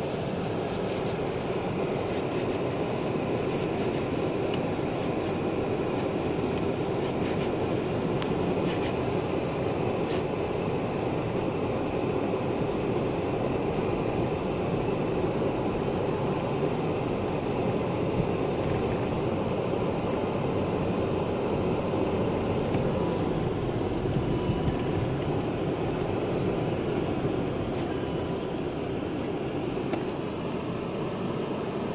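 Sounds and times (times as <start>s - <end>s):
car engine and road rumble: 0.0s - 31.9s.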